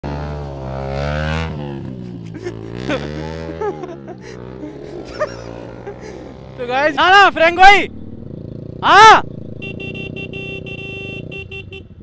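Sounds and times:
motorcycle engines humming: 0:00.0 - 0:12.0
person shouting: 0:08.8 - 0:09.2.

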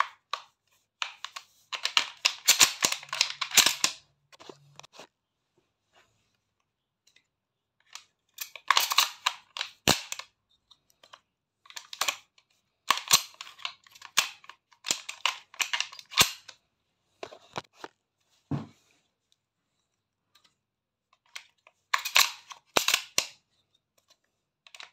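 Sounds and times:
shotgun shells loading clicks: 0:01.3 - 0:04.0, 0:07.9 - 0:10.3, 0:12.9 - 0:16.5, 0:21.9 - 0:23.3.

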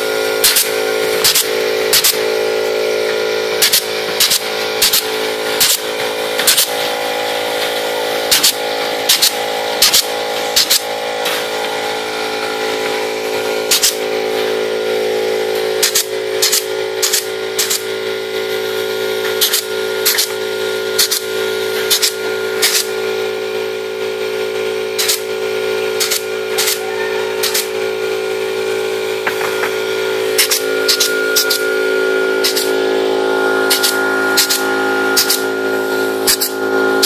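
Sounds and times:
steady machine hum: 0:00.0 - 0:37.0
pneumatic clip gun snaps: 0:00.4 - 0:02.2, 0:03.6 - 0:05.8, 0:08.3 - 0:11.4, 0:13.7 - 0:14.0, 0:15.8 - 0:17.9, 0:19.4 - 0:20.3, 0:21.0 - 0:21.3, 0:21.9 - 0:22.9, 0:25.0 - 0:25.2, 0:26.0 - 0:26.8, 0:27.4 - 0:27.7, 0:32.4 - 0:32.7, 0:35.2 - 0:35.4.

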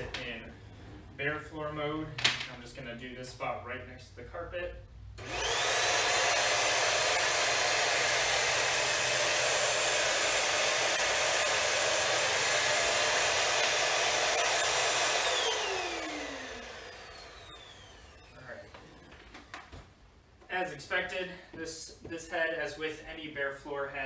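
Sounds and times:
vacuum motor winding down: 0:05.2 - 0:19.6
stick vacuum whining: 0:05.2 - 0:19.8.

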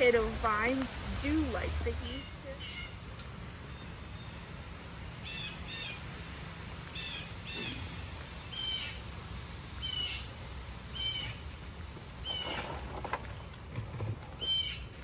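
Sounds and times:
bird calling: 0:02.0 - 0:03.0, 0:05.2 - 0:06.1, 0:06.9 - 0:09.2, 0:09.8 - 0:11.5, 0:12.2 - 0:13.4, 0:14.3 - 0:15.0.

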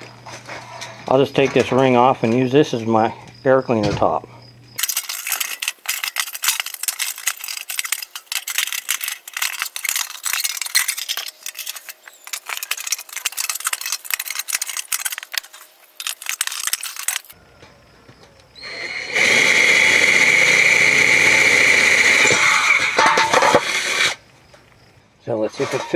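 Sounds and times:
metallic clicks and rattles: 0:04.8 - 0:17.4.

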